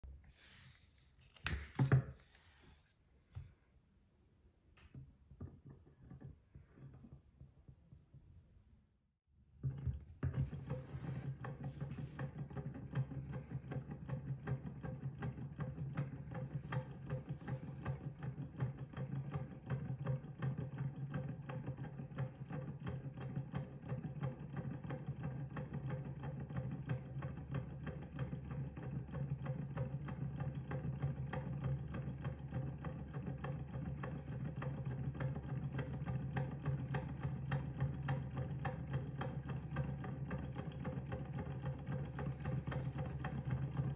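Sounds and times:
small engine mechanical clatter: 9.6 - 43.9.

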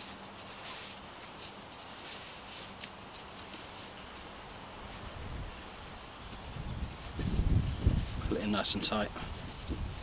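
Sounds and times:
rope rustling: 0.0 - 10.0
bird chirps: 4.8 - 6.1, 6.7 - 8.5, 9.4 - 9.8.

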